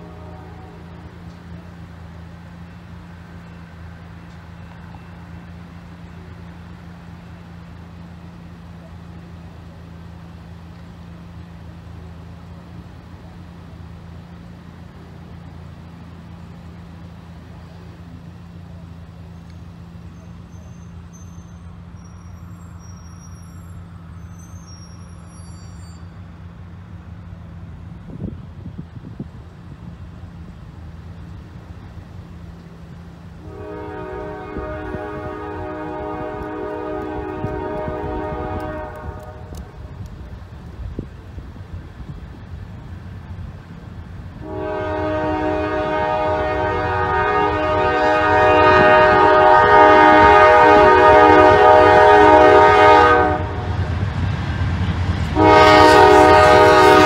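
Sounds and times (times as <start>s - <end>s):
engine humming: 0.0s - 57.0s
traffic noise: 0.0s - 57.0s
wind buffeting microphone: 27.8s - 30.2s, 34.4s - 44.5s, 47.0s - 55.4s.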